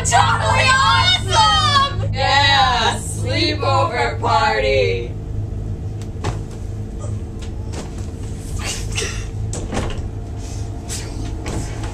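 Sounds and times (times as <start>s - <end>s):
low hum: 0.0s - 11.9s
knocks and thumps: 6.2s - 6.6s.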